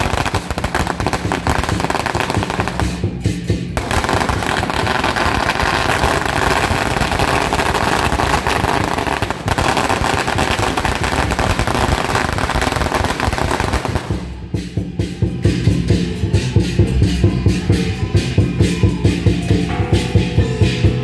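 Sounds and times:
firecrackers crackling: 0:00.0 - 0:15.6.

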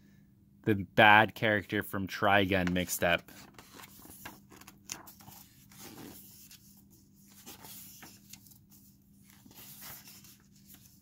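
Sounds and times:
book pages turning: 0:02.6 - 0:11.0.

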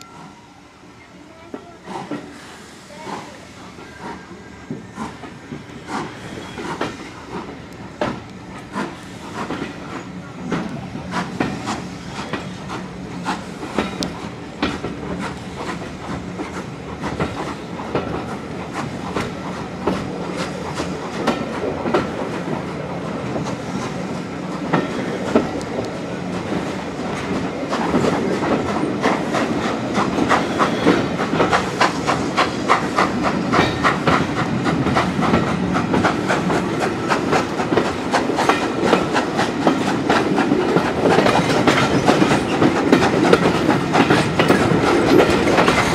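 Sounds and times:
steam train rumbling: 0:00.0 - 0:45.9
wheels clicking over rail joints: 0:04.0 - 0:45.9.

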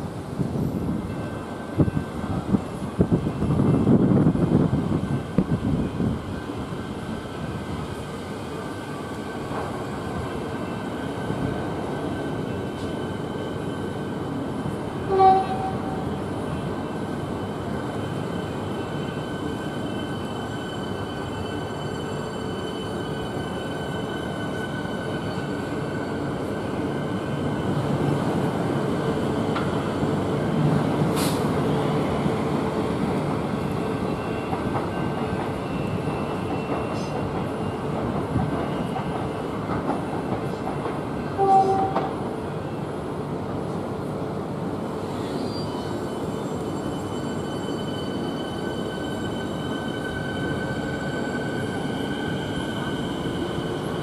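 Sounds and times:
train horn toot: 0:15.0 - 0:16.1, 0:41.4 - 0:42.2.

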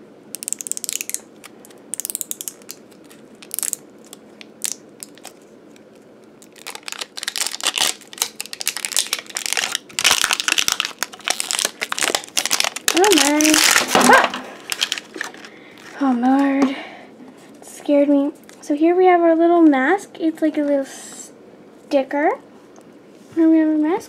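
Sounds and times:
plastic wrapping crinkling: 0:00.3 - 0:16.6.

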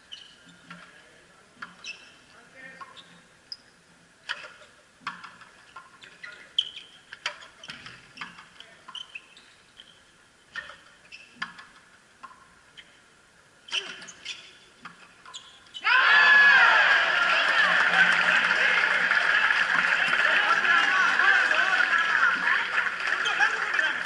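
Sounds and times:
sneakers squeaking on court: 0:01.6 - 0:03.8, 0:05.2 - 0:11.8, 0:13.7 - 0:15.8.

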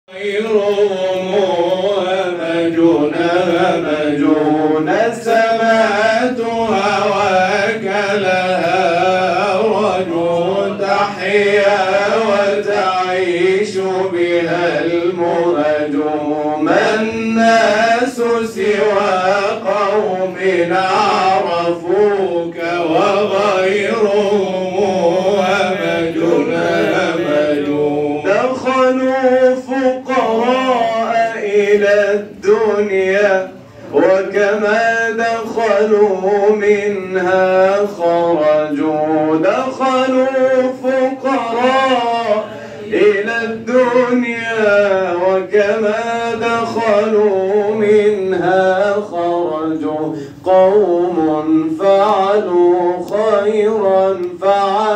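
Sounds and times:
man singing religious chant: 0:00.1 - 0:54.9.

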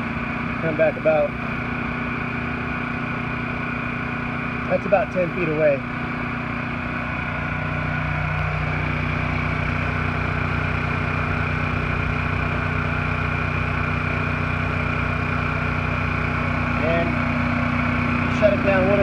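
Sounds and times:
generator engines humming: 0:00.0 - 0:19.0.

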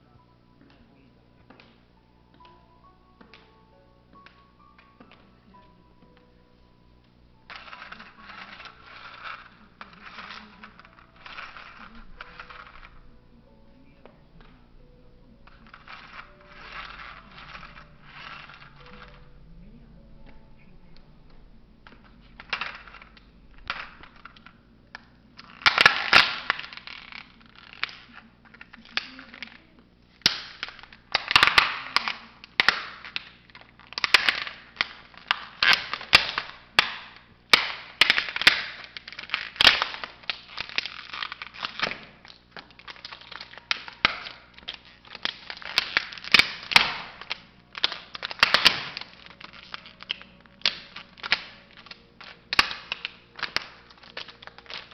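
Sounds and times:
plastic toy cracking and crunching: 0:07.4 - 0:13.1, 0:15.4 - 0:19.3, 0:20.9 - 0:54.9.

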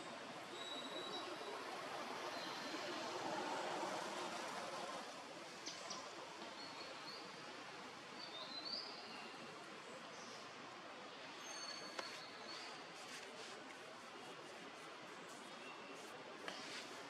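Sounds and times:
steady background hiss: 0:00.0 - 0:17.0.

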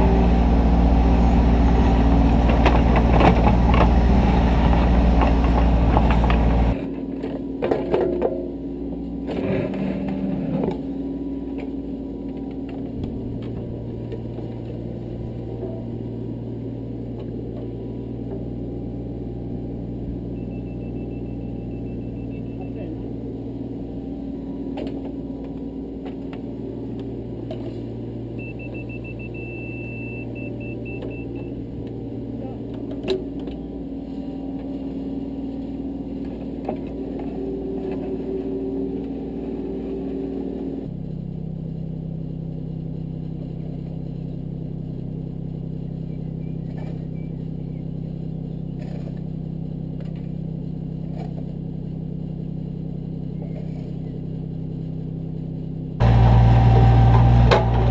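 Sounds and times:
excavator diesel engine running: 0:00.0 - 0:07.6, 0:09.7 - 0:41.0, 0:42.5 - 0:57.9
short electronic beeps: 0:20.3 - 0:23.0, 0:28.4 - 0:31.6.

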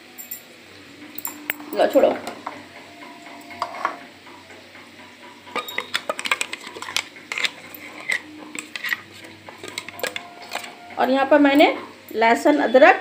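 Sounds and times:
spoon scraping a bowl: 0:03.3 - 0:04.1, 0:05.5 - 0:11.0.

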